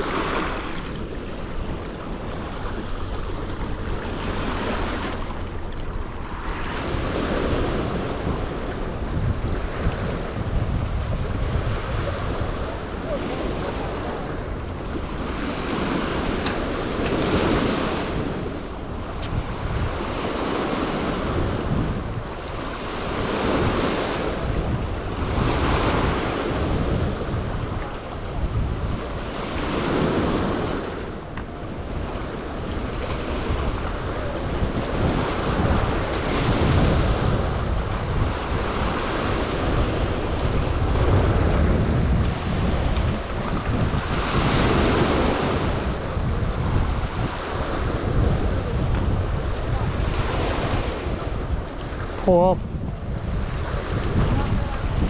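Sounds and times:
wind rumbling on microphone: 0:00.0 - 0:55.0.

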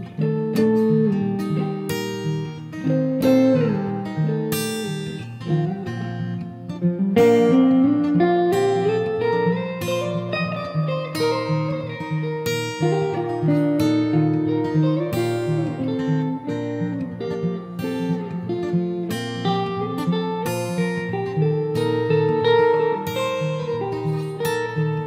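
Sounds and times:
acoustic guitar strumming chords: 0:00.0 - 0:25.0
electric guitar melodic lead: 0:00.0 - 0:25.0.

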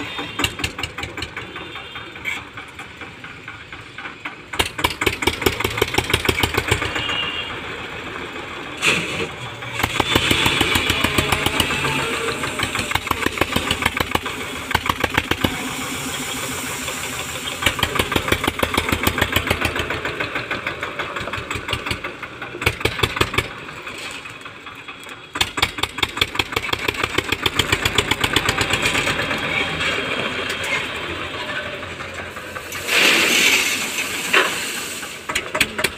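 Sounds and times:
tractor diesel engine chugging: 0:00.0 - 0:35.9
crushed stone pouring into trolley: 0:32.5 - 0:35.6.

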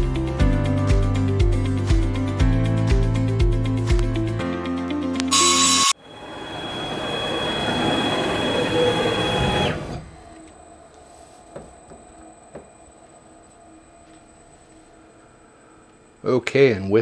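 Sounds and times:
router rushing with high whine: 0:05.3 - 0:10.0
faint high hum: 0:05.4 - 0:17.0.

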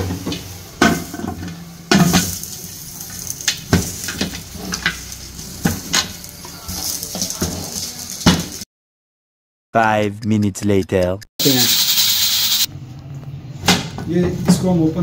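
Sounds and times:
masala sizzling: 0:00.0 - 0:08.6, 0:11.4 - 0:12.7.

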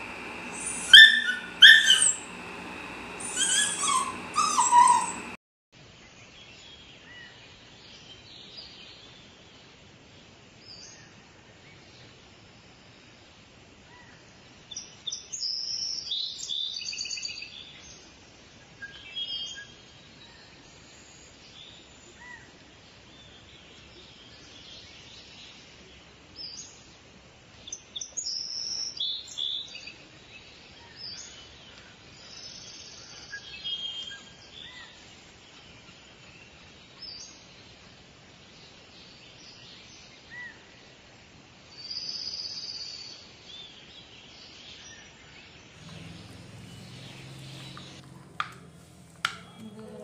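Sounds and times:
birds chirping: 0:00.0 - 0:05.4, 0:45.8 - 0:50.0.

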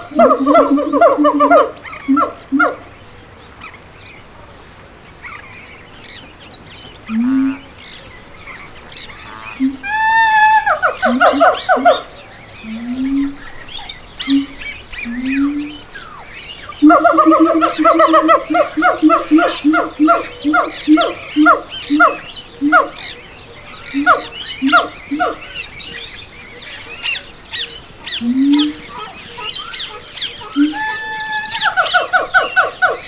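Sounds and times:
primate hoots: 0:00.0 - 0:02.9, 0:09.6 - 0:23.2, 0:23.9 - 0:25.6, 0:28.1 - 0:33.0
primate wavering call: 0:00.0 - 0:02.9, 0:09.5 - 0:26.1, 0:27.0 - 0:33.0
small birds chirping: 0:00.0 - 0:33.0.

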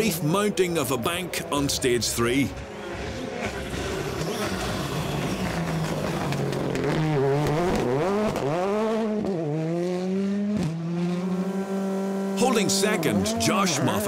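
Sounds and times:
rally car engine revving: 0:02.4 - 0:14.0.

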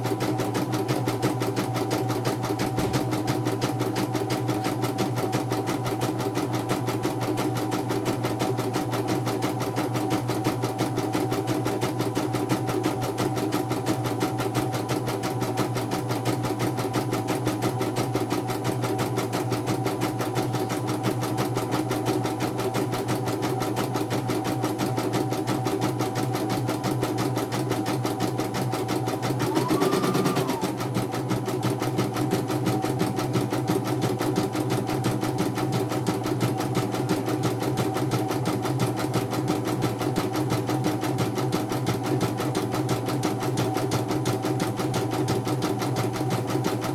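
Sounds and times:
embroidery machine stitching: 0:00.0 - 0:46.9
short machine whine: 0:29.3 - 0:30.9.

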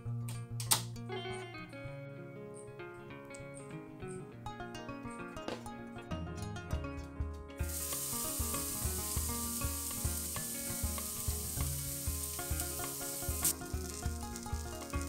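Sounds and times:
background music with beat: 0:05.5 - 0:15.0
onion sizzling in hot oil: 0:07.6 - 0:15.0.

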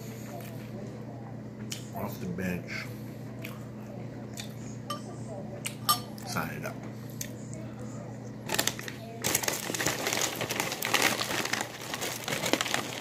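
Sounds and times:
cracker packaging crinkling: 0:08.5 - 0:13.0.

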